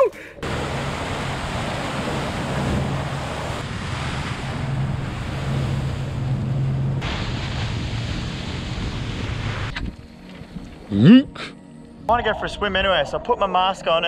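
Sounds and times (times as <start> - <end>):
water washing around boat: 0.4 - 10.9.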